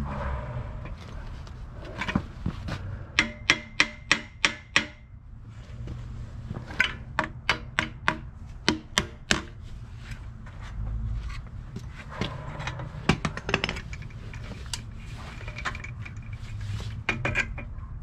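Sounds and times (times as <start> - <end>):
hammer striking metal: 3.1 - 5.1.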